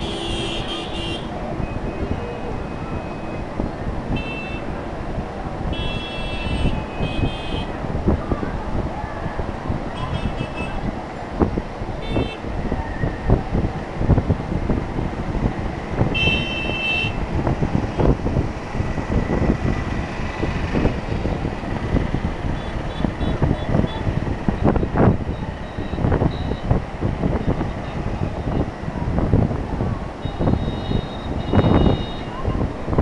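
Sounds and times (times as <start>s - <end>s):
vehicle horns tooting: 0.0s - 2.2s, 4.1s - 4.7s, 5.7s - 7.8s, 10.0s - 10.9s, 12.0s - 12.5s, 16.1s - 17.2s, 22.5s - 24.1s, 30.2s - 32.5s
road traffic: 0.0s - 33.0s
wind buffeting microphone: 0.0s - 33.0s.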